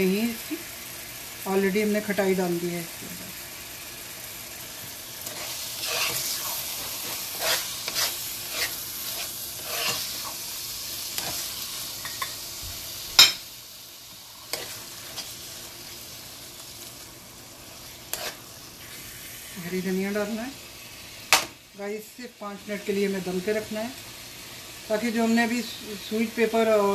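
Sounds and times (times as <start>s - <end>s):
frying sizzle: 0.0s - 26.9s
metal spoon scraping a pan: 5.2s - 10.4s, 11.2s - 12.4s, 14.4s - 15.5s, 17.8s - 19.1s.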